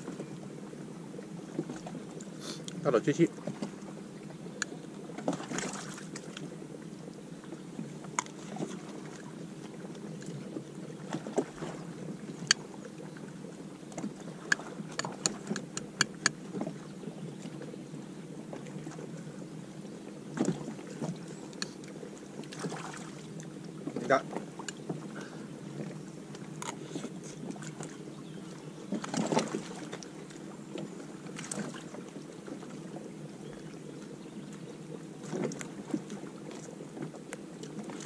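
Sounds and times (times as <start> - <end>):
sharp clicks and taps: 14.5 - 16.4.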